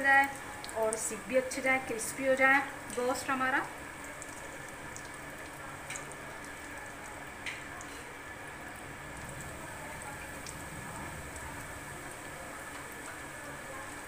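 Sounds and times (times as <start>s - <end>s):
chicken deep-frying in oil: 0.0s - 14.0s.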